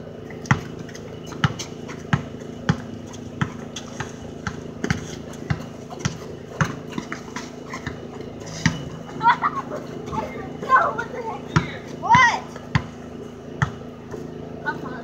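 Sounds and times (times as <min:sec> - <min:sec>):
basketball dribbled on concrete: 0:00.3 - 0:09.0, 0:11.5 - 0:13.0, 0:13.6 - 0:13.8.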